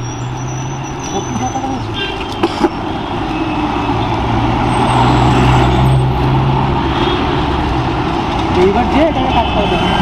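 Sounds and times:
heavy vehicle engine hum: 0:00.0 - 0:10.0
road traffic passing: 0:00.0 - 0:10.0.

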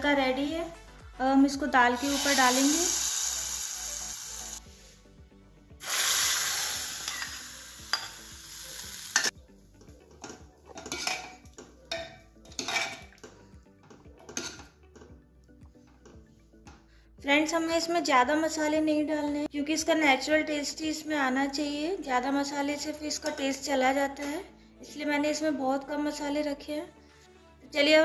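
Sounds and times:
hot oil sizzling: 0:02.0 - 0:04.6, 0:05.8 - 0:09.4
steel ladle scraping a pot: 0:10.2 - 0:13.2, 0:14.3 - 0:14.7.

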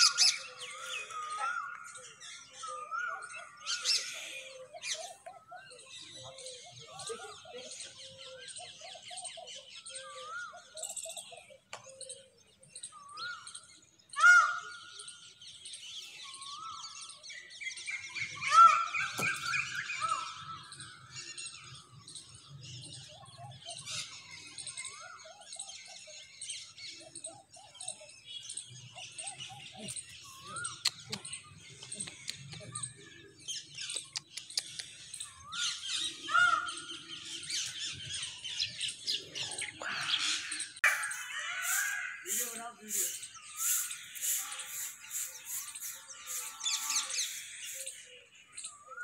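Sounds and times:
high twittering birds: 0:00.0 - 0:49.0
bird call rising and falling: 0:29.6 - 0:49.0.

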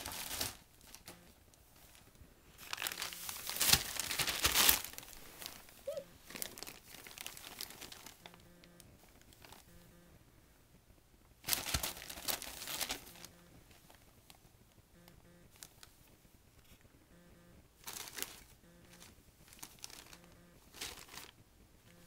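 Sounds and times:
wrapping paper crinkling: 0:00.0 - 0:01.1, 0:01.8 - 0:08.4, 0:09.0 - 0:09.7, 0:11.4 - 0:14.1, 0:17.8 - 0:21.4.

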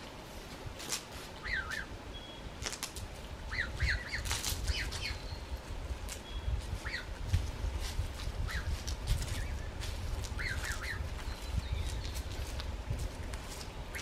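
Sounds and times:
small bird chirping: 0:01.4 - 0:02.5, 0:03.5 - 0:07.1, 0:08.3 - 0:12.6.

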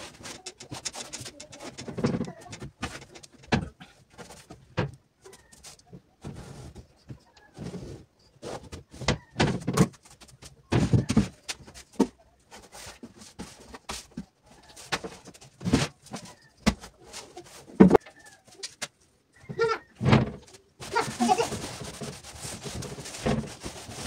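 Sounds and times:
cloth rubbing furniture: 0:20.8 - 0:24.0.

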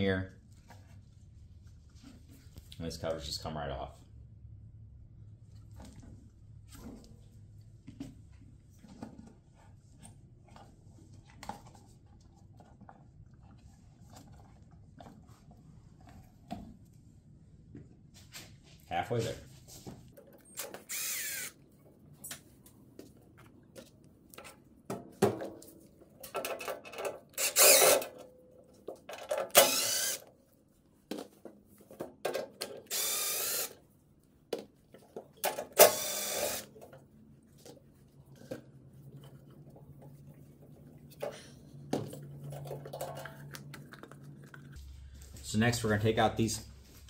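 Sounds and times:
impact driver bursts: 0:20.6 - 0:21.6, 0:27.4 - 0:28.1, 0:29.5 - 0:30.2, 0:32.9 - 0:33.8, 0:35.8 - 0:36.7
clicks and knocks of metal parts: 0:26.2 - 0:29.7.

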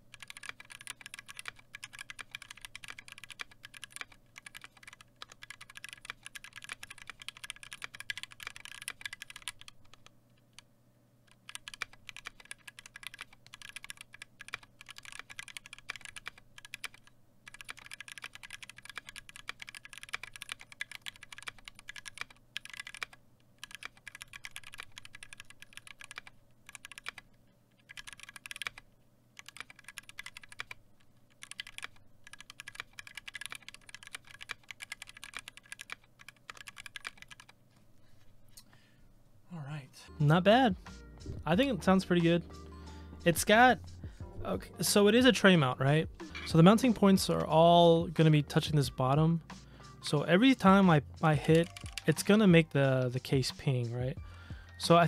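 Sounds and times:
fast typing on mechanical keyboard: 0:00.0 - 0:10.1, 0:11.3 - 0:28.8, 0:29.4 - 0:37.6, 0:51.4 - 0:53.4.

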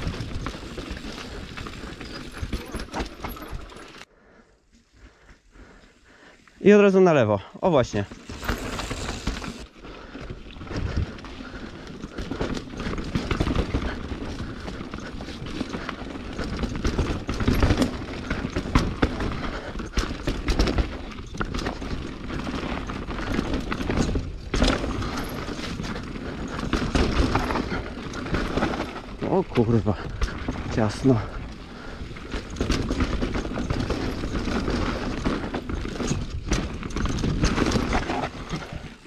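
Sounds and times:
bike knocks and rattles: 0:00.0 - 0:04.0, 0:11.9 - 0:39.0
mountain bike riding on dirt trail: 0:00.0 - 0:39.0.

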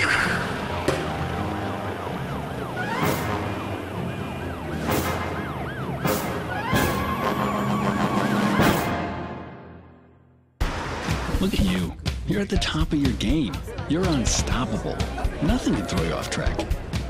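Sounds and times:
background music: 0:00.0 - 0:17.0
siren-like wailing effect: 0:01.4 - 0:09.2.

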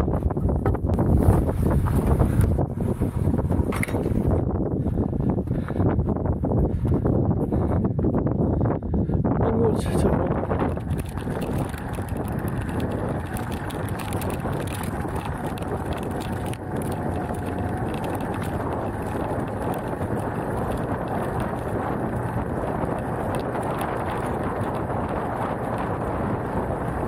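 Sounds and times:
wind buffeting microphone: 0:00.0 - 0:27.0
tyres crunching over gravel: 0:10.0 - 0:27.0
motorcycle engine running: 0:10.1 - 0:27.0.

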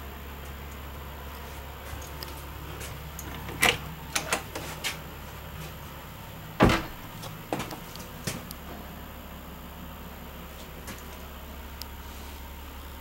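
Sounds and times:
door thump: 0:06.6 - 0:07.0.

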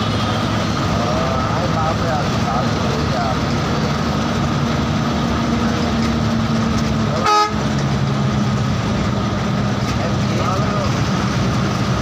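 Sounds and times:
bus engine and road noise: 0:00.0 - 0:12.0
vehicle horn toot: 0:07.2 - 0:07.7.

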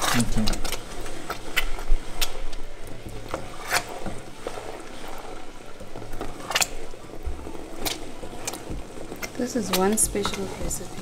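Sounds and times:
wooden spoon stirring thick sauce: 0:00.0 - 0:11.0.

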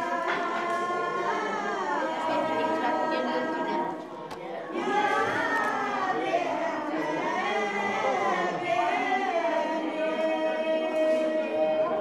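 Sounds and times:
group singing a cappella: 0:00.0 - 0:12.0.

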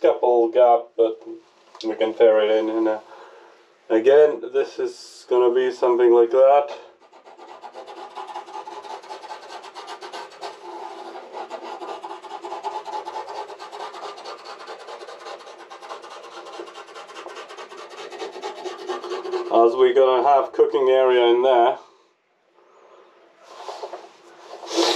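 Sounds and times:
rasp scraping plywood: 0:07.1 - 0:19.6.

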